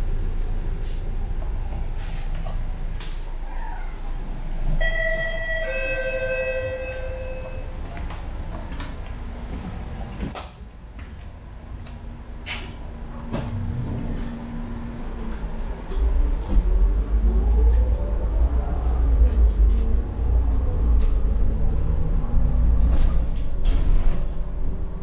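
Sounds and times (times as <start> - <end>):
bus engine rumble: 0.0 - 25.0
two-note electronic chime: 4.8 - 7.7.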